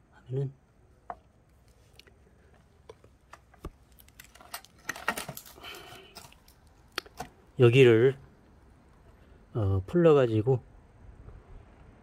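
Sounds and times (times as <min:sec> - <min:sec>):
hands handling brush cutter: 0:03.2 - 0:07.4.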